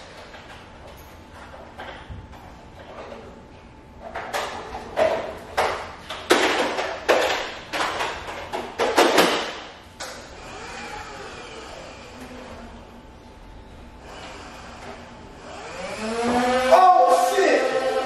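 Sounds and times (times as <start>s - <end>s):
kitchen clattering and rustling bangs: 4.1s - 9.7s.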